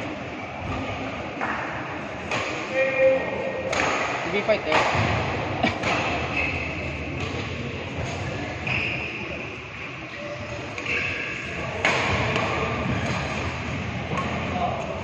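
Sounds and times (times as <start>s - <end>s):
racket hitting shuttlecock: 3.7s - 6.5s, 7.1s - 8.3s, 11.6s - 14.4s.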